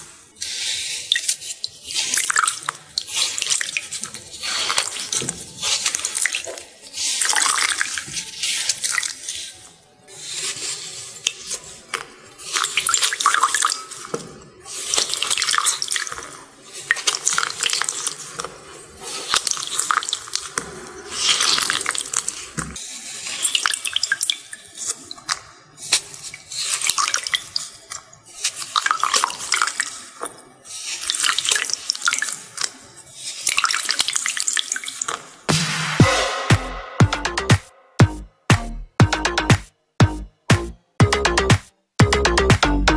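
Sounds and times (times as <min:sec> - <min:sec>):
wet sponges squelching: 0:00.0 - 0:23.4.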